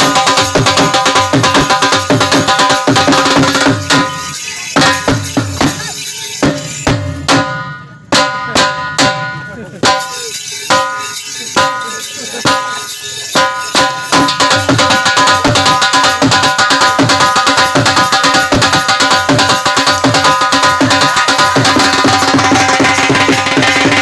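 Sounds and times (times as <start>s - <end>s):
dhol drum beating: 0.0s - 24.0s
reed pipe steady tones: 2.5s - 15.6s.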